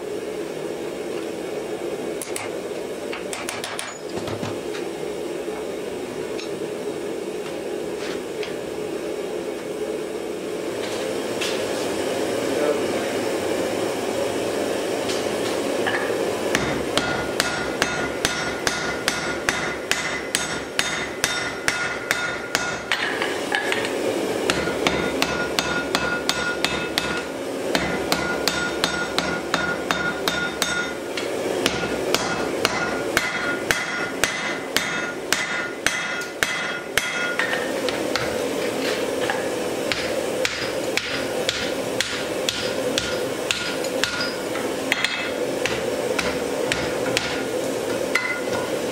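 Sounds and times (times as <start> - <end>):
hammer blows ringing on anvil: 16.5 - 23.0, 24.5 - 31.0, 31.6 - 38.3, 39.9 - 47.4, 48.1 - 48.7.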